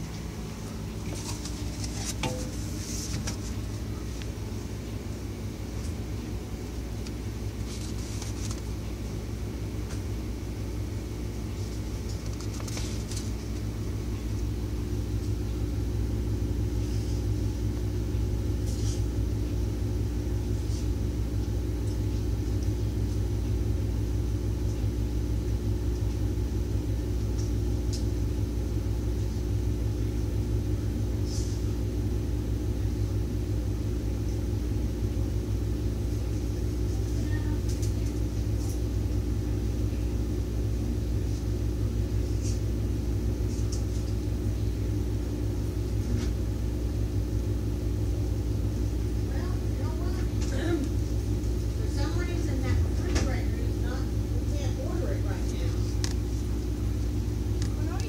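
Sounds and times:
low rumble and hum: 0.0s - 58.0s
paper booklet rustling: 1.0s - 3.8s, 7.6s - 8.7s, 12.1s - 13.6s.

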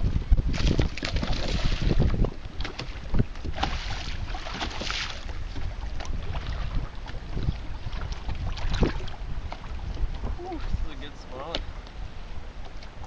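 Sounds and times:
wind buffeting microphone: 0.0s - 13.0s
fish thrashing and splashing: 0.5s - 9.7s.

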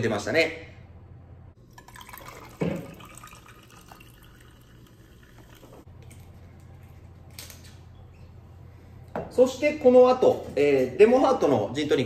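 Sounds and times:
liquid pouring into glass of ice: 1.6s - 5.8s.

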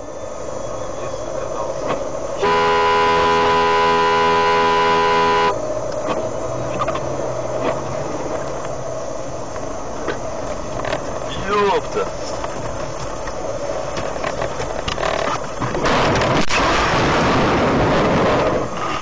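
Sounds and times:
vehicle horn blast: 2.4s - 5.6s.

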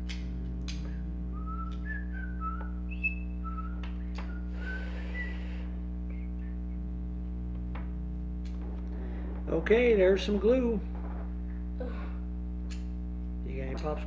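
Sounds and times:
electrical hum: 0.0s - 14.0s
person whistling a tune: 0.9s - 6.6s.

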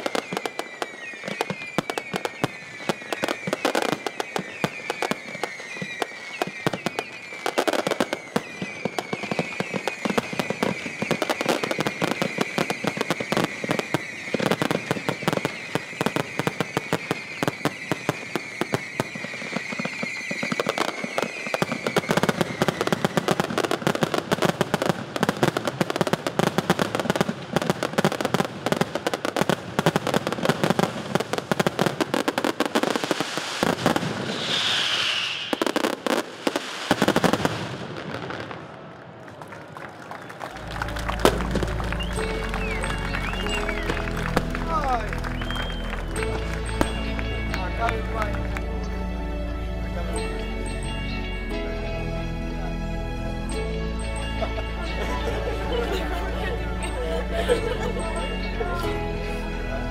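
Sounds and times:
high wavering whistle: 0.0s - 24.1s, 33.6s - 37.3s, 41.1s - 47.7s
fireworks bangs and crackles: 0.0s - 48.8s.

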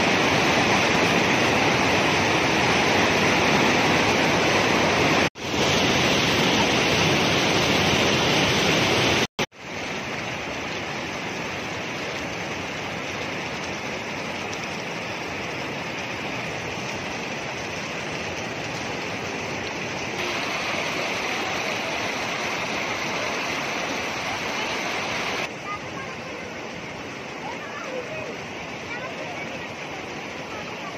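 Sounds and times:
small stream rushing: 0.0s - 30.9s
river rapids rushing over rocks: 20.2s - 30.9s.

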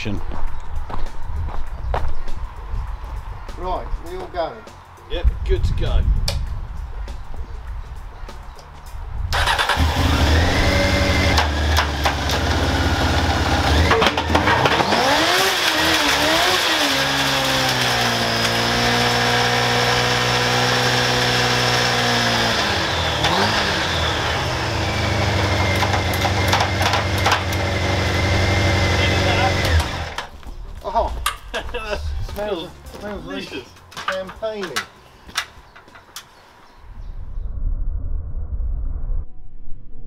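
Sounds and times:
motorcycle engine revving with whine: 9.3s - 30.3s.

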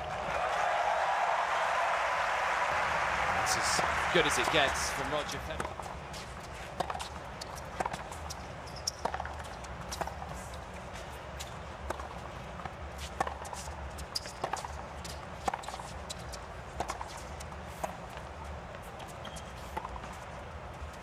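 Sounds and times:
low stadium background: 0.0s - 21.0s.

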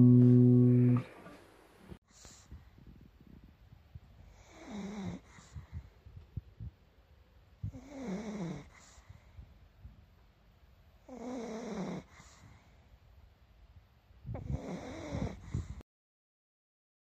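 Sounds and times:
dog snoring: 4.3s - 5.6s, 7.7s - 9.0s, 11.0s - 12.5s, 14.4s - 15.8s.

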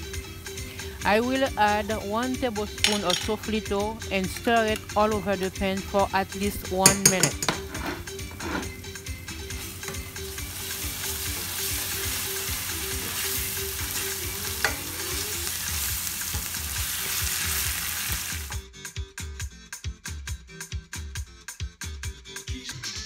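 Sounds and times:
music with a beat: 6.4s - 23.0s
spoon stirring in pan: 6.8s - 8.8s, 9.5s - 16.8s
food sizzling in hot oil: 7.7s - 18.6s.

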